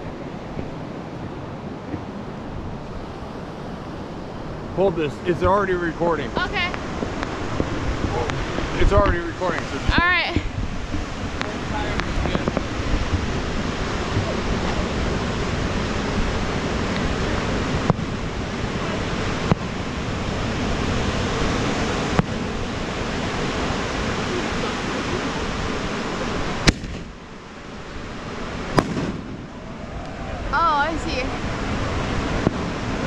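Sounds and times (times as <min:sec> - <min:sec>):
surf rushing: 0:00.0 - 0:33.0
firework bangs: 0:26.6 - 0:27.2, 0:28.6 - 0:29.7, 0:32.3 - 0:33.0.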